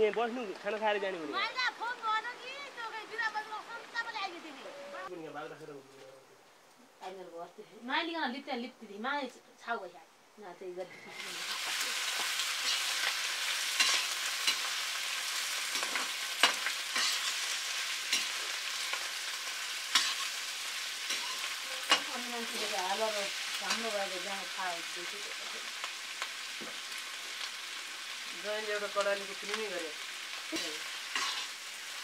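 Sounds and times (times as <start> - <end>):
meat sizzling in hot oil: 11.1 - 32.0
metal ladle scraping a wok: 15.7 - 22.2, 30.6 - 31.6.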